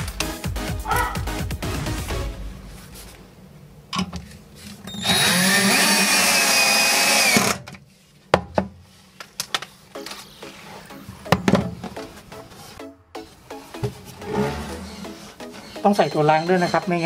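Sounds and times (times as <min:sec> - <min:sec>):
drill driver driving a screw: 0:04.9 - 0:07.6.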